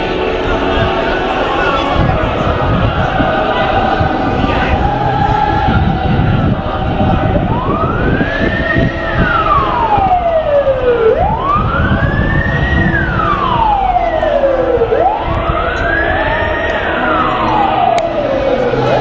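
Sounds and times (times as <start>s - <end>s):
loud background noise: 0.0s - 19.0s
siren wailing: 0.0s - 19.0s.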